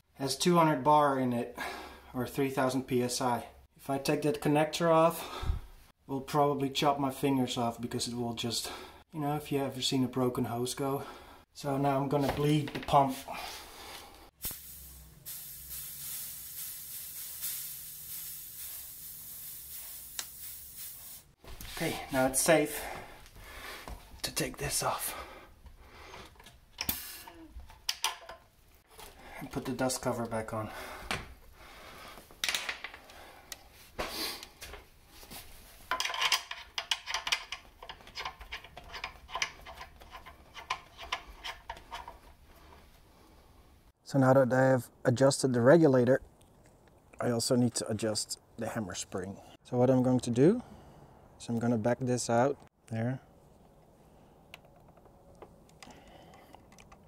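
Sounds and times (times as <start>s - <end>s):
compressed air hissing: 14.3s - 22.0s, 26.8s - 27.5s
small metal parts clicking: 35.9s - 42.2s.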